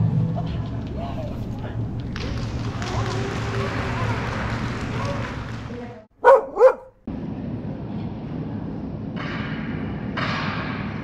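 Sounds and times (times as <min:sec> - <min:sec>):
dog barking: 0:06.2 - 0:07.0.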